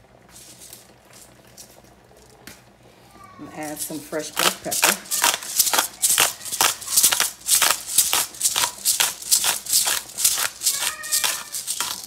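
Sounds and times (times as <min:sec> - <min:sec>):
pepper grinder rasping: 0:03.5 - 0:12.0.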